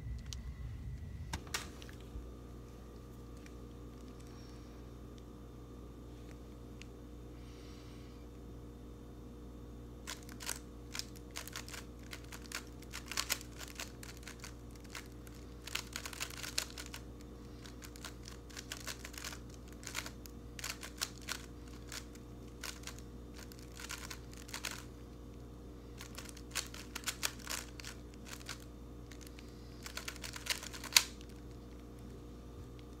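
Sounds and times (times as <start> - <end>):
puzzle cube plastic clicks: 10.0 - 24.9, 26.0 - 31.8.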